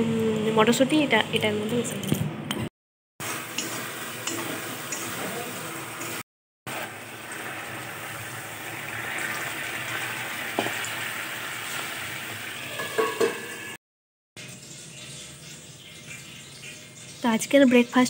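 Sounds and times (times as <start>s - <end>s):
food sizzling in hot oil: 3.2s - 13.8s, 14.4s - 18.0s
metal plate clanks: 12.8s - 13.6s.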